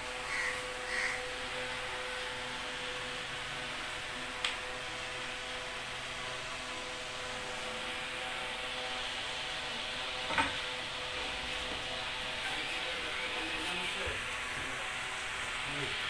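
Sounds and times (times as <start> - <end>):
bandsaw running: 5.1 - 16.0.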